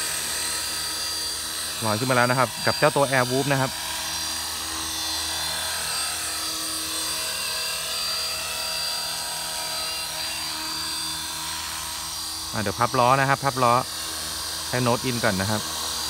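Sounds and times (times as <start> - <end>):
rc helicopter motor whine: 0.0 - 16.0.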